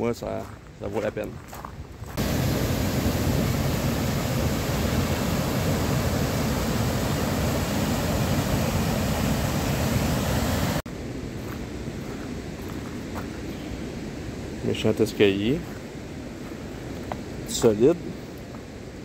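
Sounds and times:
waterfall rushing: 0:02.2 - 0:10.8.

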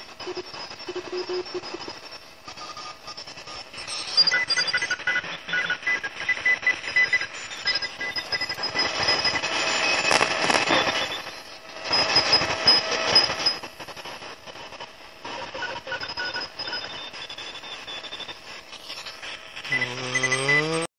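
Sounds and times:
radio static: 0:00.0 - 0:20.9
short on-off radio tones: 0:15.4 - 0:20.9.

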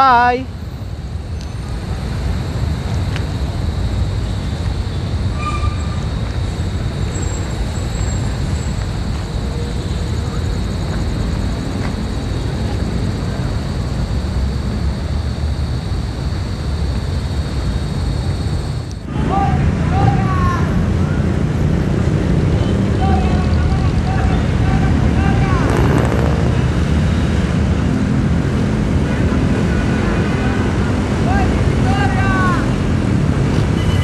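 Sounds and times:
distant city traffic rumble: 0:00.0 - 0:34.0.

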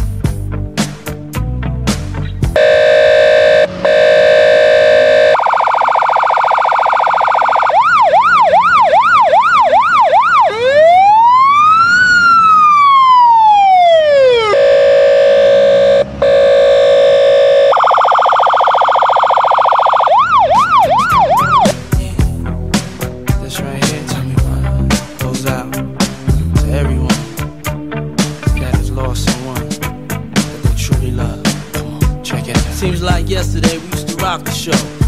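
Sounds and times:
electronic police siren: 0:02.6 - 0:21.8.

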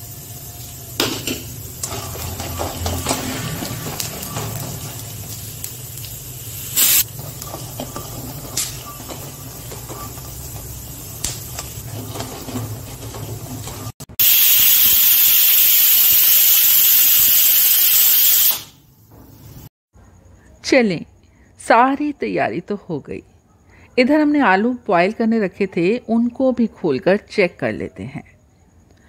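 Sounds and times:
pressure cooker steam hissing: 0:00.0 - 0:18.8
metal spatula scraping a pan: 0:01.8 - 0:05.4, 0:07.0 - 0:14.0.

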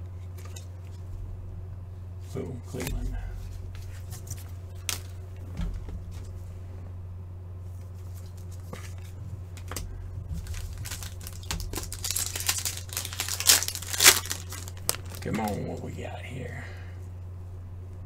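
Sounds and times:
steady low hum: 0:00.0 - 0:18.0
foil pack tearing and crinkling: 0:03.8 - 0:05.2, 0:08.0 - 0:15.7.

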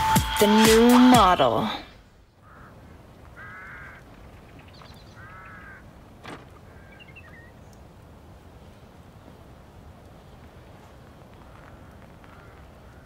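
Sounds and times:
bird calling: 0:01.0 - 0:08.0, 0:08.6 - 0:13.0
faint bird chirps: 0:02.2 - 0:05.9, 0:06.6 - 0:07.9.

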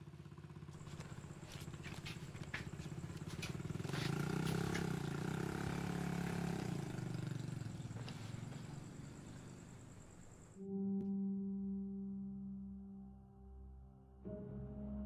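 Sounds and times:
motor engine running: 0:00.0 - 0:10.6.

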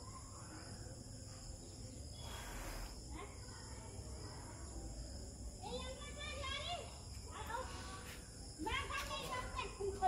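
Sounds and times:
high-pitched insect calls: 0:00.0 - 0:10.0.

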